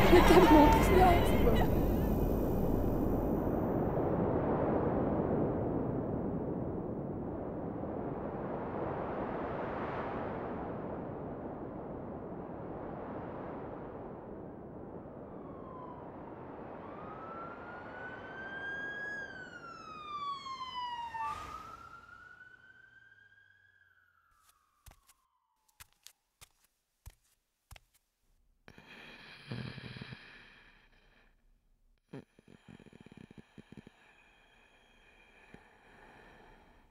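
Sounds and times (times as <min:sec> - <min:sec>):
emergency vehicle siren wailing: 0:00.0 - 0:03.3, 0:15.1 - 0:24.3
wind rushing: 0:00.0 - 0:17.9.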